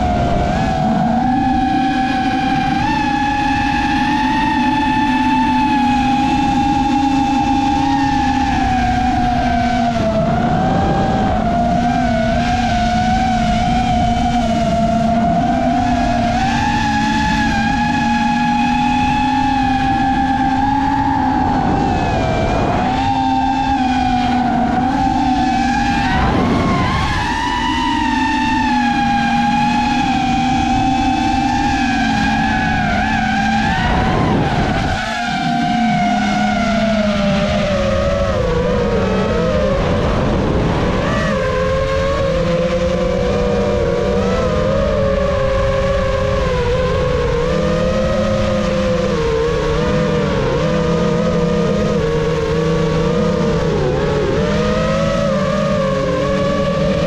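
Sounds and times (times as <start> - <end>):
drone propellers whining: 0.0 - 57.0
wind rumble: 0.0 - 57.0.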